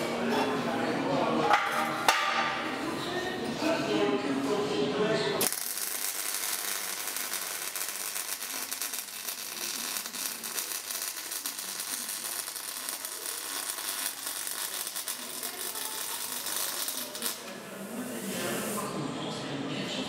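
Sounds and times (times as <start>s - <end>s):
welding arc crackling: 5.4s - 18.8s.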